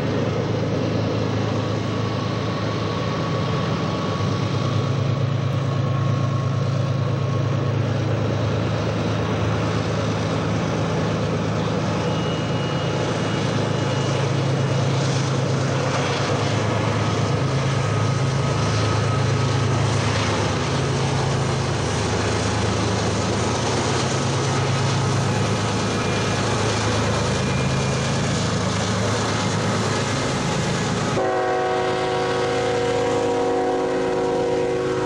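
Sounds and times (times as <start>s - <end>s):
locomotive engines droning: 0.0s - 35.0s
wheel and rail noise: 0.0s - 35.0s
locomotive horn chord: 31.2s - 35.0s.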